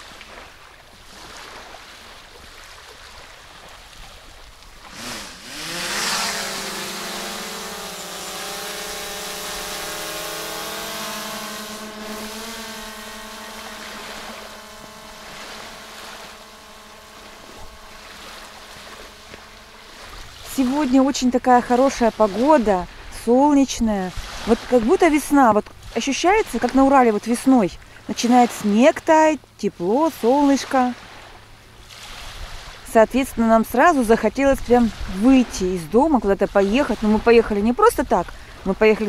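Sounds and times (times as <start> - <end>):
drone propellers whining: 4.8 - 22.6.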